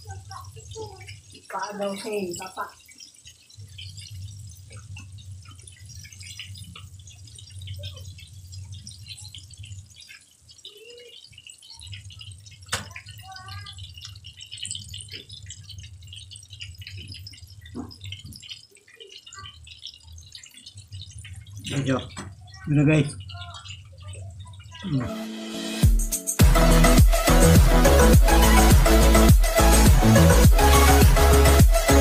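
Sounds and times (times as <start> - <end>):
hot oil crackling and sizzling: 0.0 - 32.0.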